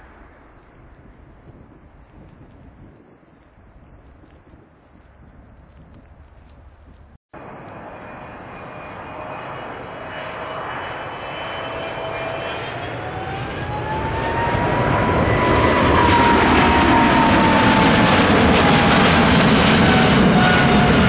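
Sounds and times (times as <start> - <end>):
jet airliner passing overhead: 0.0 - 21.0
engine whine: 7.4 - 21.0.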